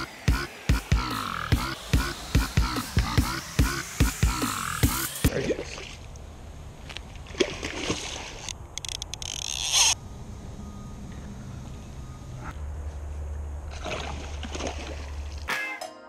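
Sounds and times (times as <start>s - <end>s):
electronic dance music: 0.0s - 5.3s
fish splashing in water: 7.2s - 8.5s, 13.7s - 15.5s.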